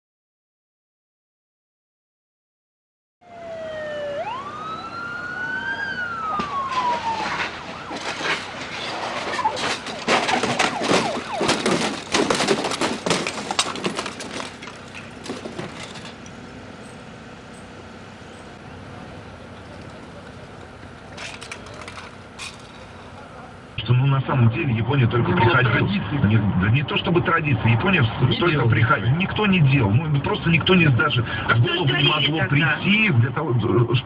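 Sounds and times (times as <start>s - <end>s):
motorcycle siren wailing: 3.2s - 14.5s
sharp knocks and crackle: 6.3s - 16.4s.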